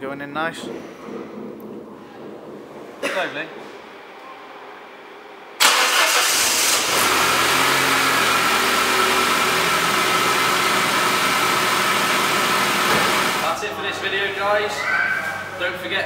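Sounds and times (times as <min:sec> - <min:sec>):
car engine starting and idling: 0:05.6 - 0:13.5.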